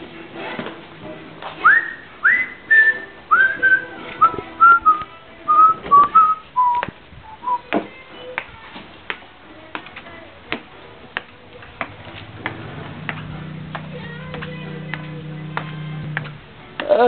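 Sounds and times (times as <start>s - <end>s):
person whistling a slow tune: 1.6s - 7.7s.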